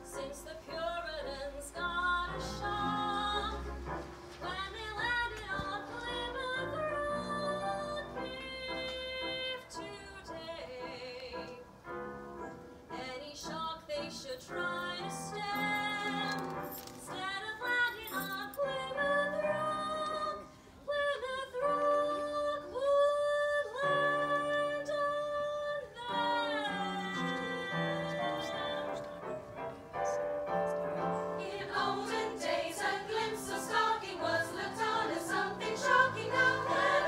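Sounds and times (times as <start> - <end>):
mixed choir singing: 31.2 - 37.0.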